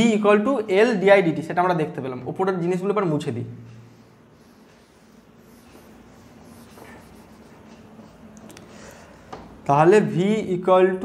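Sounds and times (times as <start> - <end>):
cloth rubbing on whiteboard: 4.0 - 8.3.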